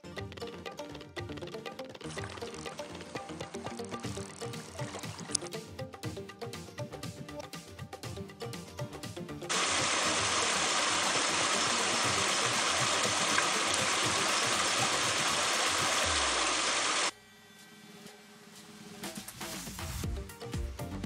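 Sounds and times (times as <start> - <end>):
water rushing over rocks: 9.5 - 17.1.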